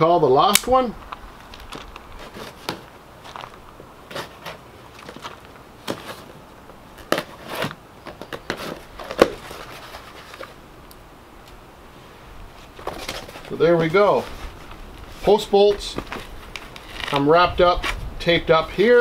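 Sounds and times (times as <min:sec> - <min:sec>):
sharp crack: 0:00.4 - 0:02.0
cardboard flaps rustling: 0:01.5 - 0:10.6, 0:12.5 - 0:18.0.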